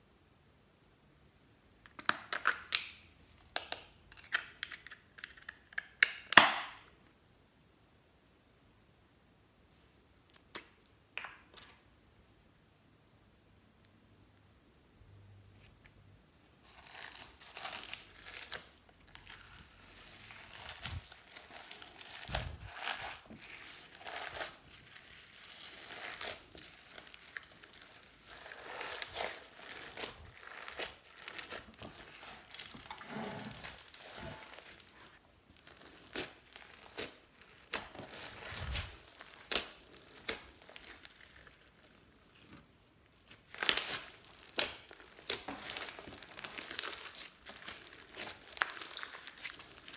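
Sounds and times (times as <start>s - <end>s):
slime crinkling and crackling: 16.6s - 49.9s.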